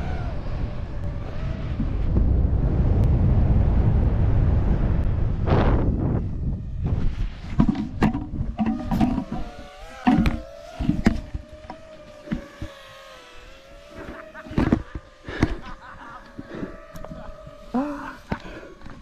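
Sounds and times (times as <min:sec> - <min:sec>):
drone propellers whining: 0:00.0 - 0:19.0
wind buffeting: 0:00.0 - 0:19.0
sharp thumps: 0:06.8 - 0:13.0.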